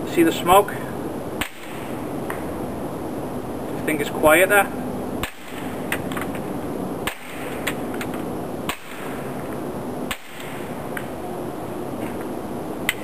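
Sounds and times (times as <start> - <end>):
suppressed pistol shots: 5.2 - 5.7, 7.0 - 7.7, 8.7 - 9.2, 10.1 - 10.7.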